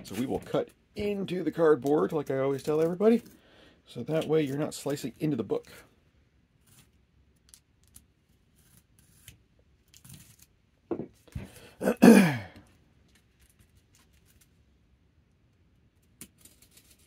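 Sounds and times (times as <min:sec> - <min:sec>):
knife scratching cardboard: 0:08.5 - 0:10.5.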